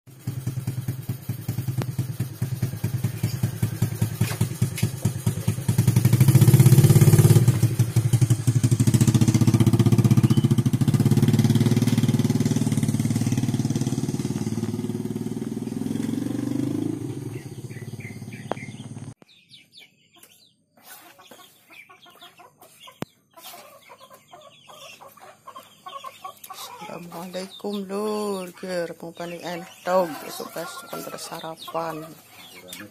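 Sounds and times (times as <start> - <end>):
small motorcycle engine: 0.1 - 19.2
faint poultry clucking: 20.1 - 27.8, 28.7 - 32.9.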